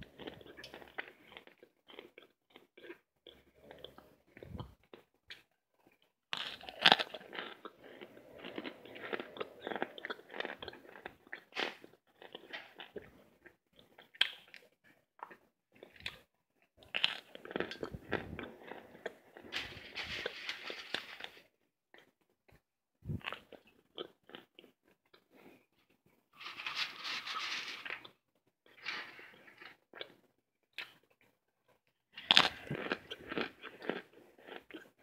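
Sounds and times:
cornstarch chunks crunched and chewed: 0.0s - 4.0s, 4.8s - 22.6s, 23.2s - 25.5s, 32.2s - 35.0s.

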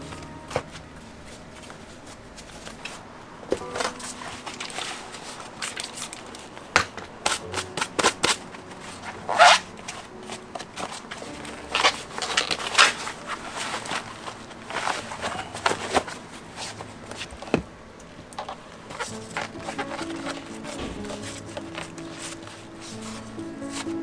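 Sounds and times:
leather rustling and creasing: 8.9s - 17.6s, 18.4s - 24.0s.

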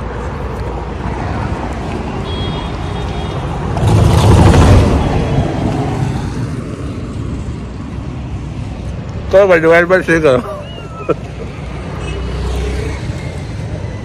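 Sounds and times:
road traffic noise: 0.0s - 14.0s
vehicle passing close: 3.5s - 8.0s.

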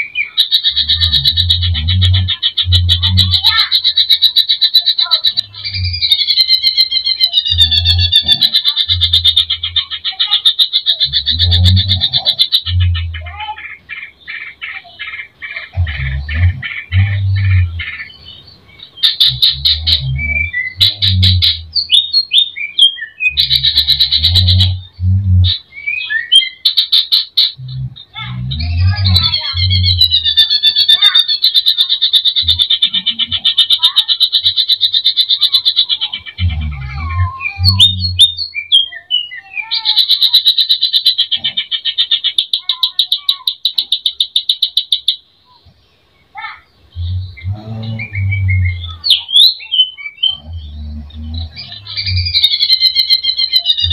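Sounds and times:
songbird singing sharp chirps: 0.0s - 53.9s
bird singing whistled notes: 5.5s - 8.3s, 17.0s - 26.8s, 37.3s - 39.8s, 46.9s - 53.9s
low hum: 11.1s - 13.3s, 15.8s - 18.7s, 23.4s - 25.7s, 46.8s - 49.0s.

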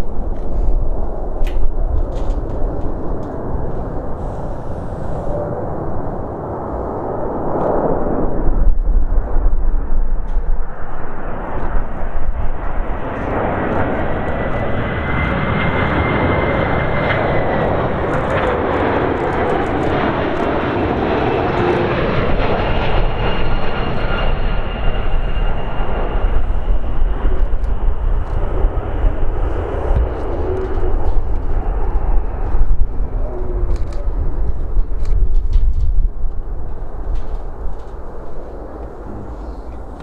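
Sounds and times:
jet engines rumbling: 0.0s - 40.0s.

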